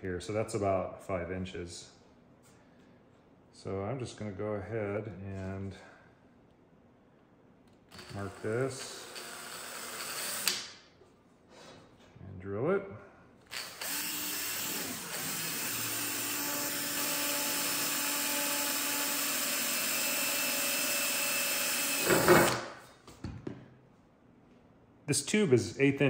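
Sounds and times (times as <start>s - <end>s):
cordless drill boring metal tube: 8.0s - 10.6s, 13.5s - 22.6s.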